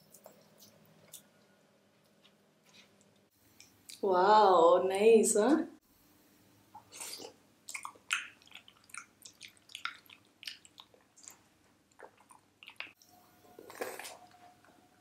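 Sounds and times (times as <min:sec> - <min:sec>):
wet chewing and lip smacks: 0:06.8 - 0:13.0.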